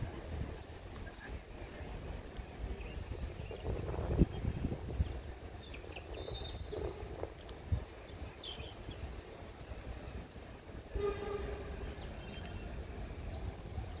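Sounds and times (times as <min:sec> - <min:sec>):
birds chirping: 0:08.0 - 0:14.0
train horn: 0:10.9 - 0:12.1.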